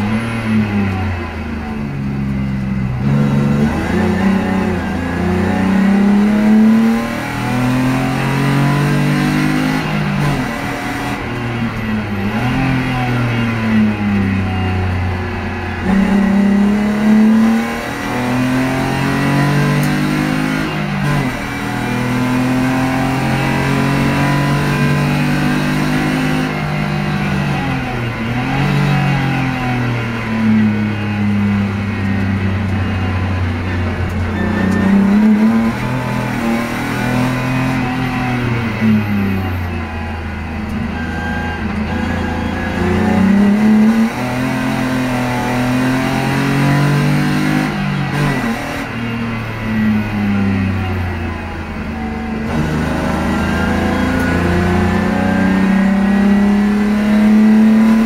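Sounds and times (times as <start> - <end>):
car engine revving: 0.0 - 58.0.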